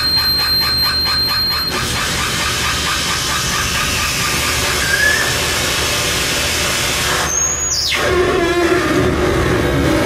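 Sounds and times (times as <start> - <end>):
rising whistle: 0.0 - 1.8, 4.7 - 5.4, 7.2 - 8.0
harsh electronic noise: 0.0 - 10.0.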